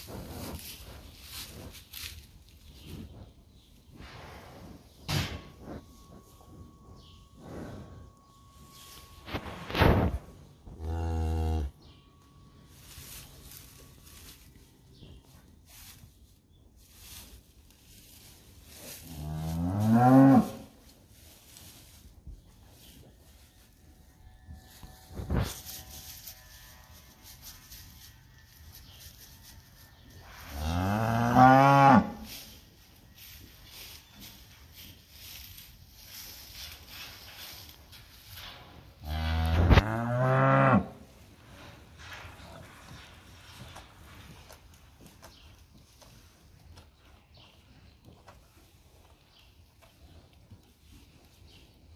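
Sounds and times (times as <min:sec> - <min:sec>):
cow mooing: 0:10.8 - 0:11.8.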